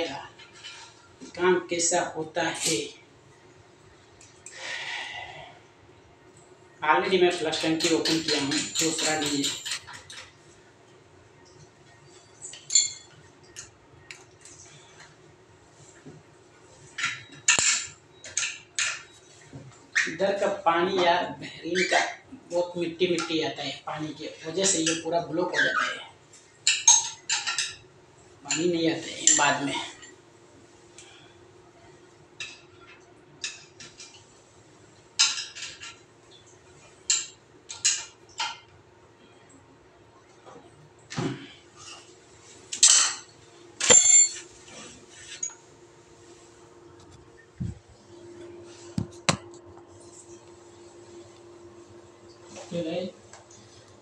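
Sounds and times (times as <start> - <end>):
faint steady hum: 0.0 - 54.0
metal tools clinking on ceramic cistern: 7.6 - 10.2, 12.4 - 13.7, 26.7 - 27.8, 43.8 - 44.5.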